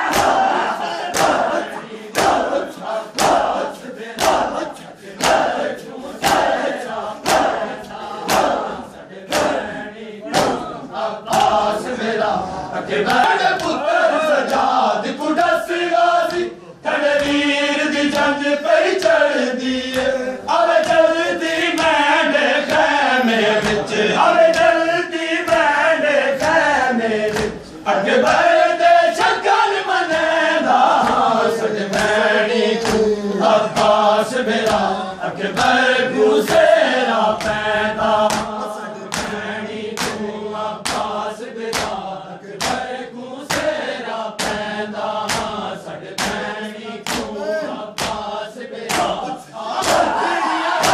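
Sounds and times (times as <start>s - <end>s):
men chanting together: 0.0s - 50.9s
hand slaps on chest: 0.1s - 0.5s, 1.1s - 1.5s, 2.1s - 3.6s, 4.2s - 4.6s, 5.2s - 5.6s, 6.2s - 8.7s, 9.3s - 9.6s, 11.3s - 11.6s, 17.2s - 17.4s, 27.3s - 27.6s, 38.3s - 39.4s, 40.0s - 40.2s, 40.8s - 41.1s, 41.7s - 42.0s, 42.6s - 42.9s, 43.5s - 43.8s, 44.4s - 45.6s, 46.2s - 47.3s, 48.0s - 48.3s, 48.9s - 49.2s, 49.8s - 50.1s.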